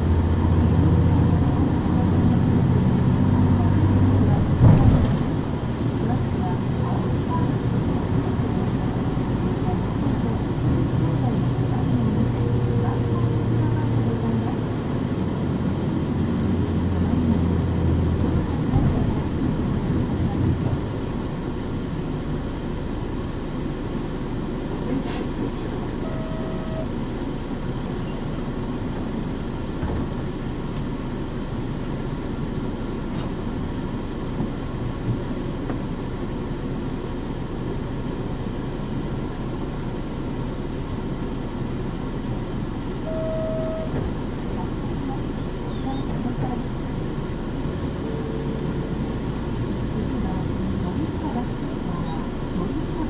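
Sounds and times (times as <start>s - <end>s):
bus diesel engine droning: 0.0s - 53.0s
road and cabin rumble: 0.0s - 53.0s
short electronic tone: 26.0s - 26.9s, 43.0s - 44.0s.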